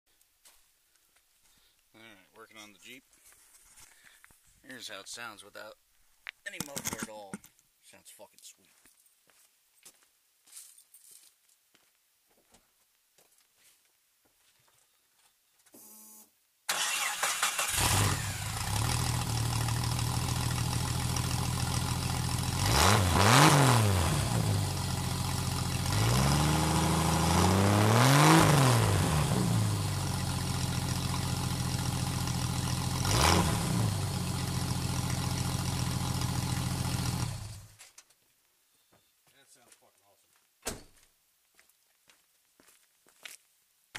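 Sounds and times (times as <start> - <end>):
unmuffled car engine revving: 21.8 - 37.6.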